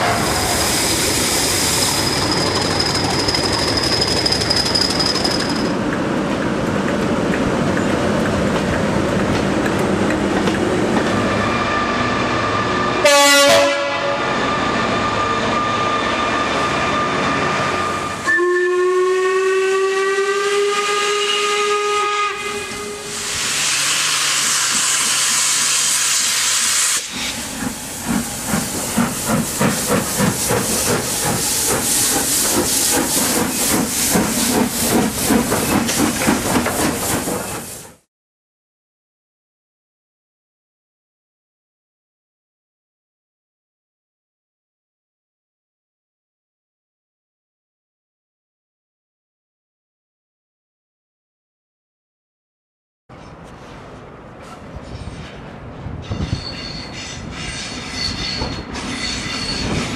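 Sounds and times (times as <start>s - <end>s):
steam hissing: 0.0s - 5.3s, 22.7s - 38.0s
diesel locomotive squealing: 0.0s - 5.8s, 11.1s - 13.0s, 14.2s - 18.5s, 22.4s - 37.8s, 56.0s - 59.9s
train horn: 11.3s - 25.4s
steam whistle: 11.4s - 27.4s
steam locomotive exhaust beats: 18.0s - 38.0s.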